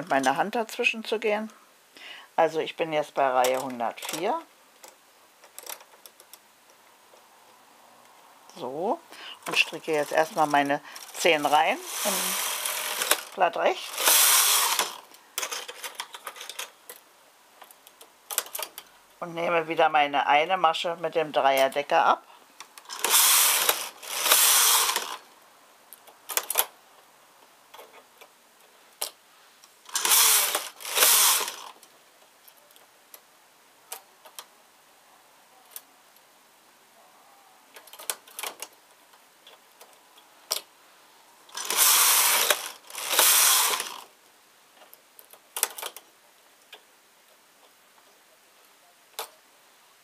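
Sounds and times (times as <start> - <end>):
knitting machine carriage whirring: 9.4 - 16.7, 22.8 - 25.3, 29.9 - 31.8, 41.5 - 44.1.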